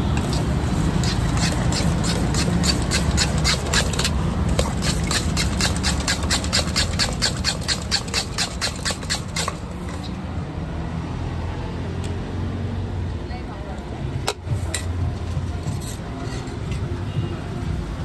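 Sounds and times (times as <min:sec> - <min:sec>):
steel spoon clanking against bowl: 0:00.2 - 0:10.1.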